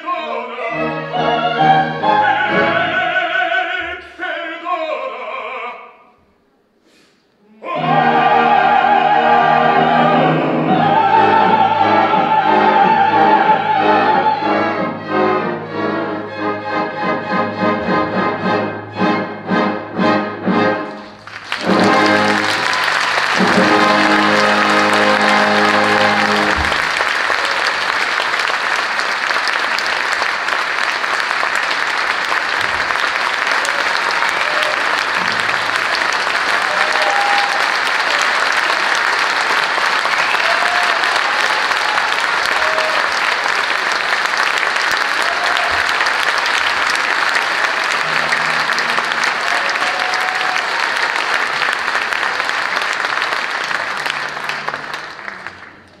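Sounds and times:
audience applauding: 20.9 - 56.0
orchestra final chord: 21.6 - 27.0.

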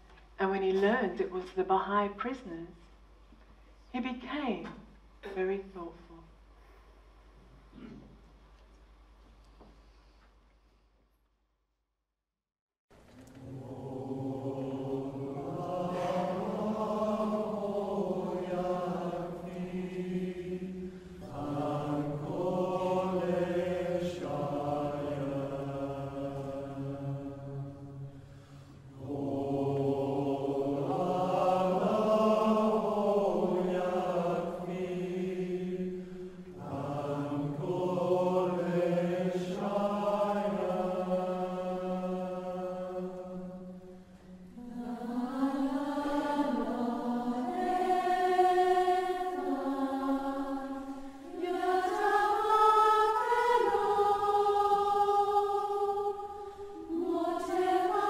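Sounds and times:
voices chanting a prayer: 13.4 - 58.0.

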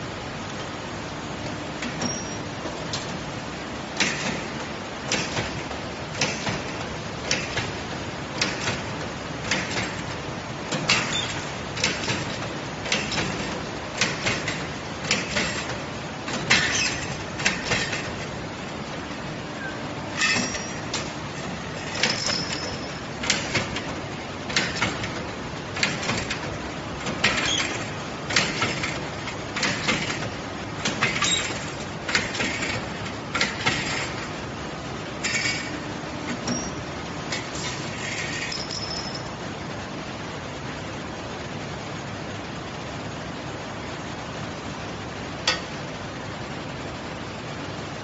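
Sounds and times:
punching machine clacking: 4.0 - 18.4, 20.1 - 34.3.

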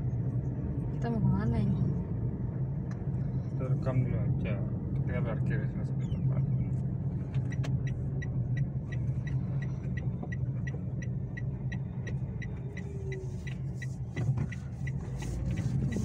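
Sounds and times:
car engine humming: 0.0 - 16.0.

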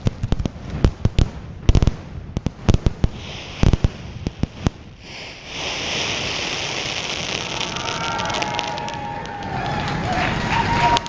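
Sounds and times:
fireworks shells bursting: 2.7 - 11.0
crowd applause: 7.4 - 11.0.

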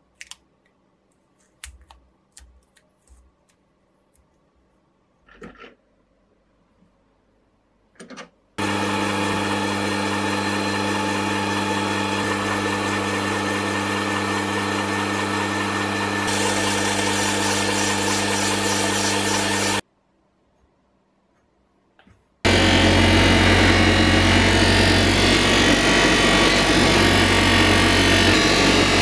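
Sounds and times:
metal lathe humming: 8.6 - 19.8, 22.5 - 29.0.

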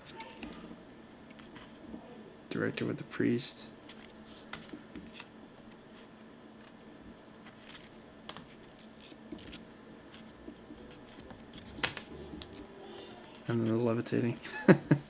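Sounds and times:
photo prints rustling: 0.0 - 2.0, 3.8 - 14.5
low room hum: 0.0 - 15.0.

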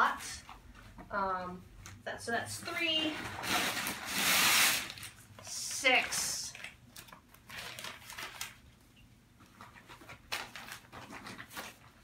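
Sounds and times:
newspaper rustling and crinkling: 2.6 - 8.8, 9.4 - 12.0.

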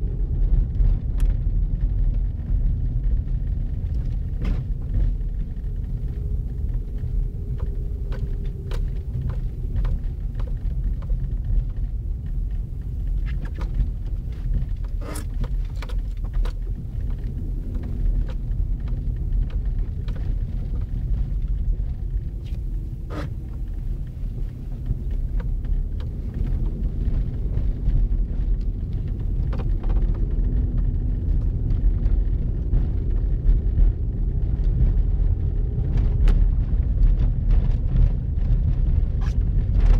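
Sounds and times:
engine and tyres rumbling: 0.0 - 39.9
faint engine hum: 0.0 - 39.9.

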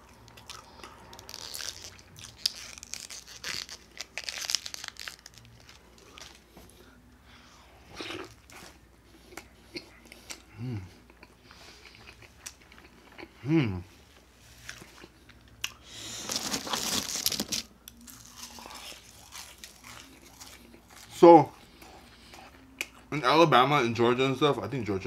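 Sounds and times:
close chewing with mouth smacks: 7.9 - 13.4.

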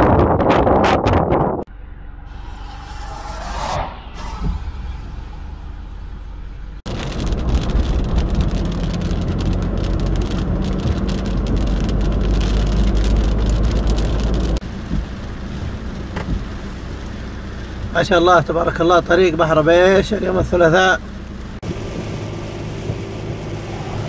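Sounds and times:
tyres and wind rushing: 0.0 - 24.0
deep engine rumble: 1.4 - 24.0
rain pattering: 6.9 - 24.0.

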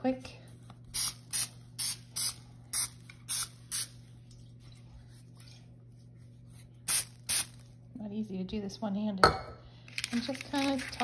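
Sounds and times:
aerosol can spraying: 6.9 - 7.6.

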